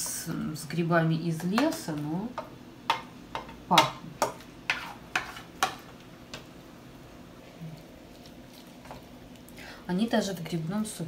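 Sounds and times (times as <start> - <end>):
spoon scraping metal pan: 3.7 - 5.9.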